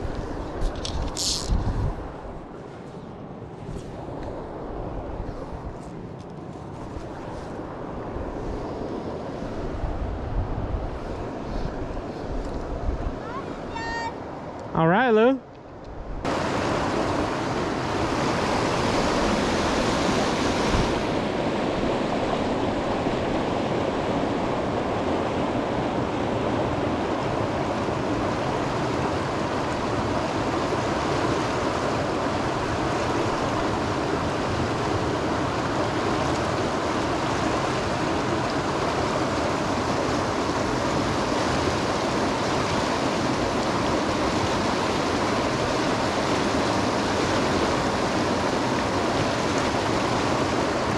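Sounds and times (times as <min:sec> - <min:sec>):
river rushing over rocks: 0:16.3 - 0:50.9.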